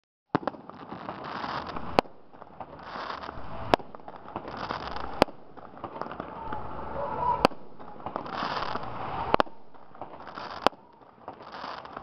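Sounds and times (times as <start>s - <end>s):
firework crackling: 0.3s - 12.0s
firework shells bursting: 0.3s - 12.0s.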